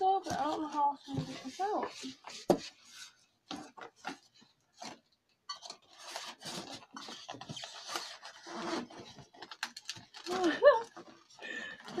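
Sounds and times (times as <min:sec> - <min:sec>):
cardboard box scraping: 0:00.3 - 0:03.2, 0:06.0 - 0:09.3.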